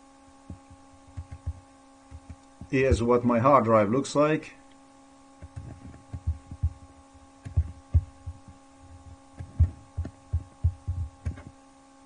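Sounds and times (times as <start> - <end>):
electrical hum: 0.0 - 12.0
dull low thumps: 5.4 - 11.5.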